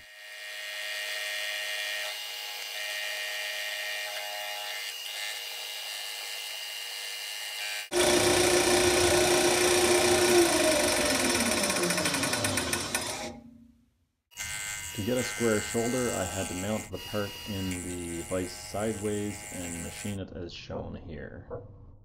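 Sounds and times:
metal lathe machining whir: 0:07.9 - 0:13.4
low hum: 0:07.9 - 0:13.8.

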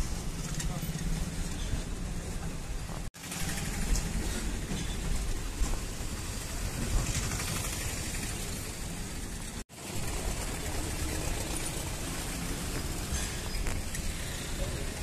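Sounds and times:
bus engine rumble: 0:00.0 - 0:15.0
wind and tyre hiss: 0:00.0 - 0:15.0.

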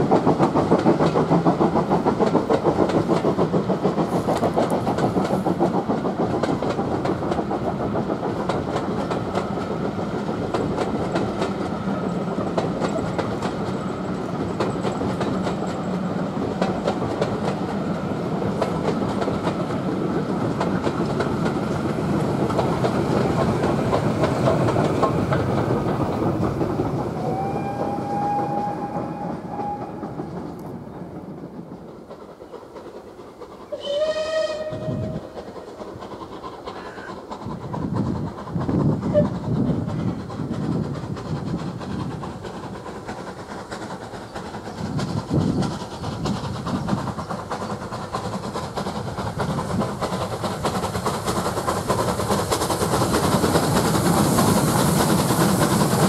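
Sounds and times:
train wheels clicking over rail joints: 0:00.0 - 0:56.0.

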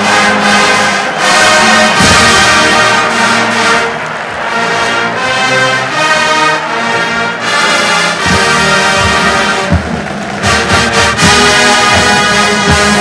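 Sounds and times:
brass sustained chords: 0:00.0 - 0:13.0
drum strikes: 0:01.9 - 0:03.0, 0:08.1 - 0:13.0.

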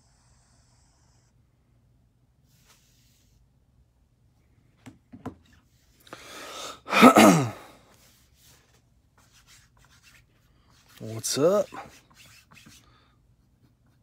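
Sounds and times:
sharp intake of breath: 0:06.1 - 0:07.8
person sneezing: 0:06.3 - 0:07.8.

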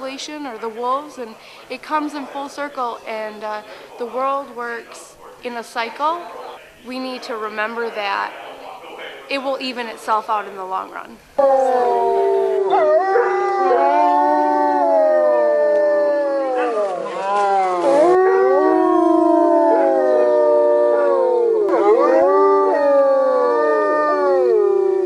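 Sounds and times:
wolves howling in chorus: 0:11.4 - 0:25.0.

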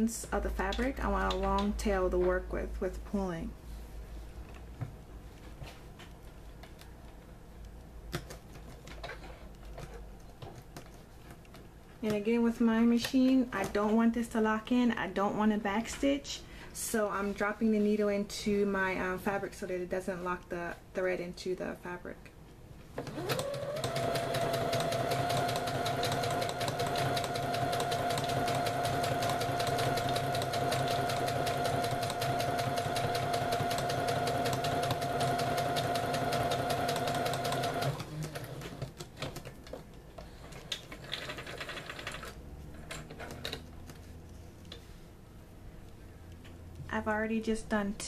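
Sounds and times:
sewing machine motor humming: 0:23.0 - 0:38.8.

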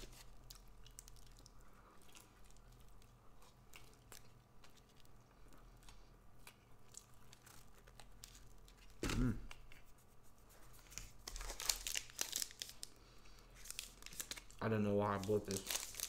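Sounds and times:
faint chewing: 0:00.0 - 0:10.9
low steady hum: 0:00.0 - 0:16.0.

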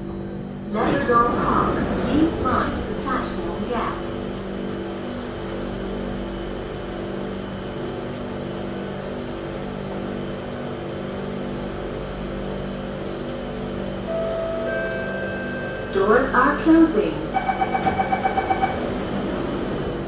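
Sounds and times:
train car hum: 0:00.0 - 0:20.0
door-closing chime: 0:17.4 - 0:18.8.

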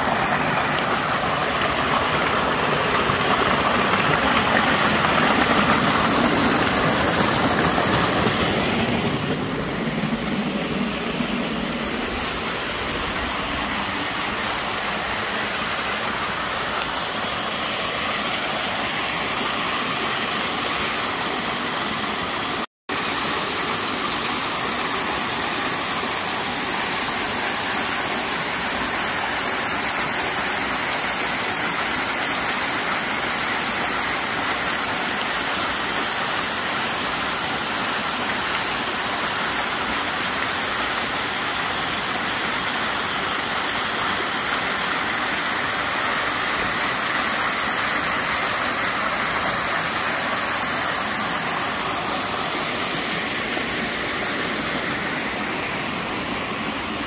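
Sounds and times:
waterfall rushing and splashing: 0:00.0 - 0:57.0.

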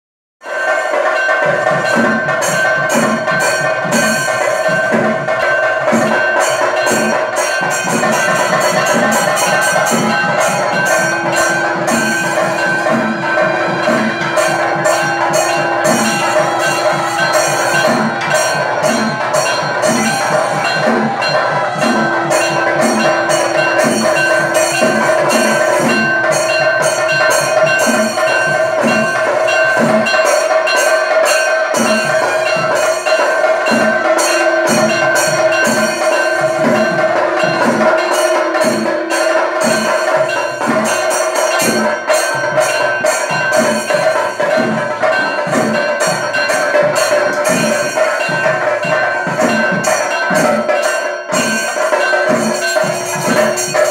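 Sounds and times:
cymbal strikes: 0:00.4 - 0:53.9
fast drumbeats: 0:00.4 - 0:53.9
long held notes: 0:06.2 - 0:29.6, 0:31.8 - 0:50.3.

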